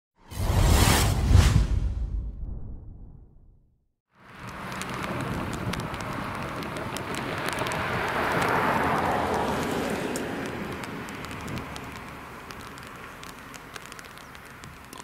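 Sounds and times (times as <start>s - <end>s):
cars driving past on asphalt: 4.2s - 15.0s.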